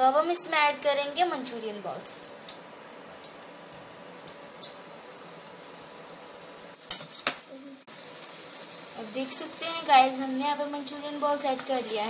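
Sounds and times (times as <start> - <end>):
hot oil deep-frying: 3.2 - 12.0.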